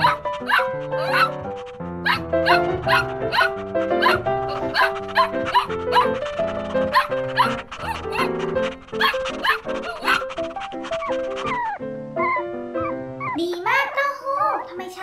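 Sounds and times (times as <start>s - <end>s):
puppy yips: 0.0s - 14.7s
bouncy background music: 0.0s - 15.0s.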